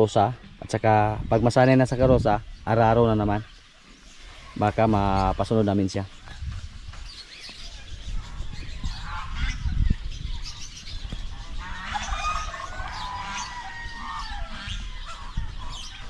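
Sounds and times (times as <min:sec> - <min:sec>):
small birds chirping: 0:00.0 - 0:16.0
fowl calling: 0:08.2 - 0:09.8, 0:11.4 - 0:16.0.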